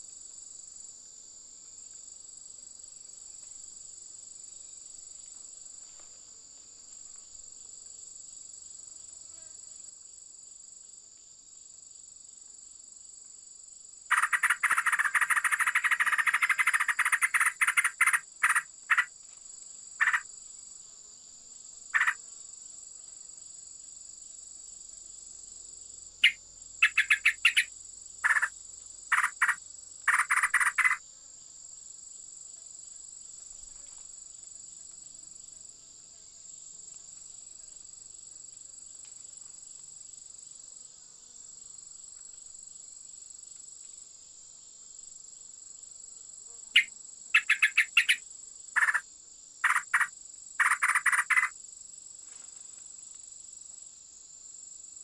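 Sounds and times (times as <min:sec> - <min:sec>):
insects droning: 0:00.0 - 0:55.0
fast-pulsing buzzy insect trill: 0:14.0 - 0:19.1, 0:20.0 - 0:20.6, 0:21.6 - 0:22.6, 0:26.2 - 0:31.2, 0:46.1 - 0:51.8.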